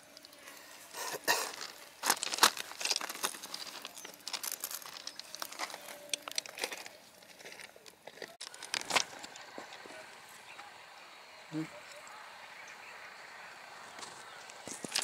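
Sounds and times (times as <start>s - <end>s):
irregular crackling and clicking: 1.3s - 9.8s.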